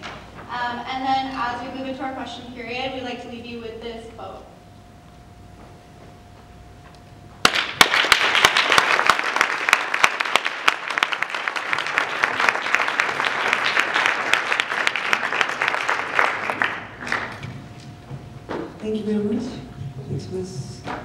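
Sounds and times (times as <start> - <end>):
audience applauding: 7.4 - 17.5.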